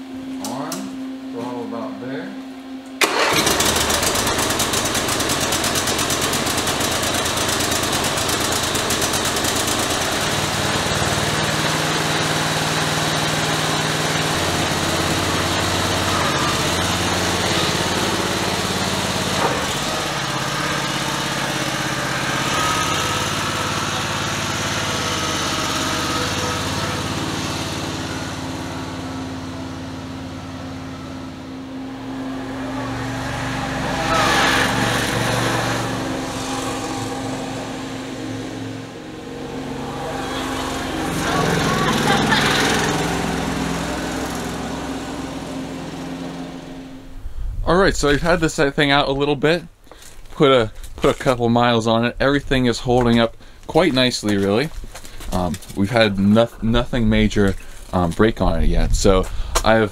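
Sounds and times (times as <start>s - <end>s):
small engine running: 3.0s - 47.1s.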